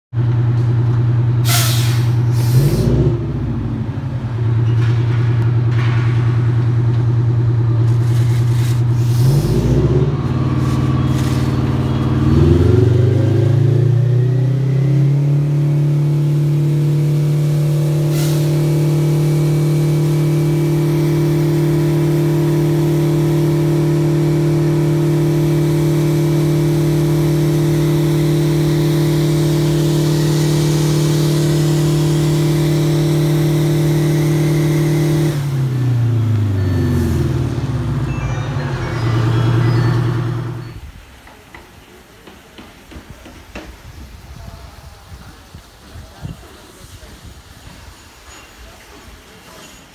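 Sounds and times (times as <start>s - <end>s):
fire truck engine revving: 0.2s - 40.8s
short air hisses: 1.4s - 2.9s, 8.0s - 9.7s, 10.5s - 12.1s, 18.0s - 18.9s
water spraying from turret: 7.8s - 38.0s, 44.0s - 49.6s.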